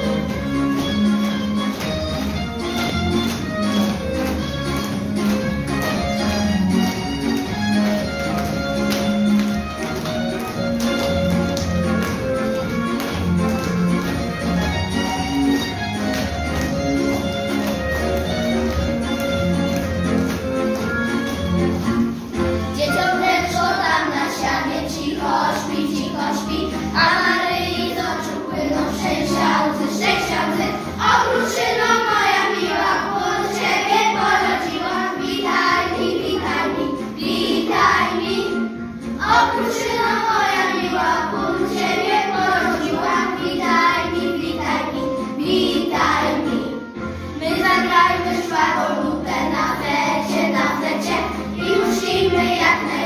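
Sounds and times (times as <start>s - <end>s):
instrumental backing music: 0.0s - 53.0s
children singing a carol: 22.8s - 53.0s.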